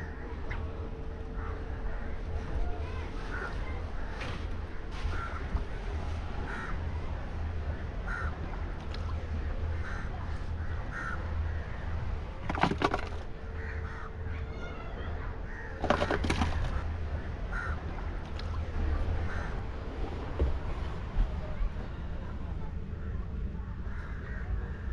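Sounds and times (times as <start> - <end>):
low steady rumble: 0.0 - 24.9
crows cawing: 5.1 - 5.6, 6.5 - 6.8, 8.0 - 8.4, 9.8 - 11.9, 13.6 - 14.5, 15.4 - 16.8, 17.5 - 17.9, 23.9 - 24.9.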